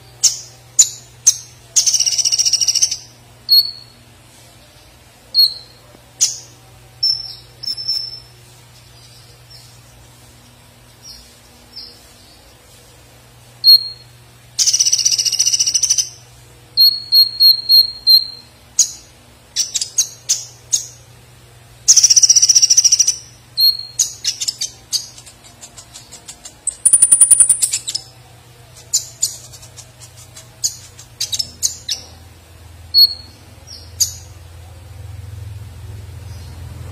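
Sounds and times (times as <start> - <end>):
sunbird singing: 0.0 - 4.0, 13.6 - 16.2, 21.9 - 28.2, 32.9 - 34.4
faint low hum: 0.0 - 36.9.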